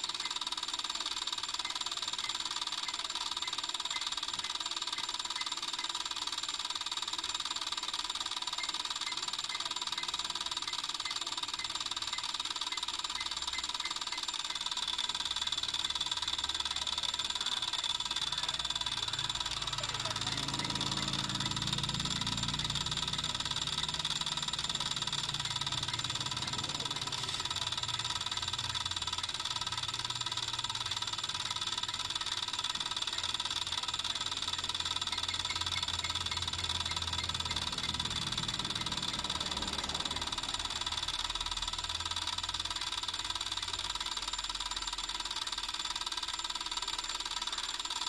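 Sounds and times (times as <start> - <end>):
water meter whine: 8.2 - 45.6.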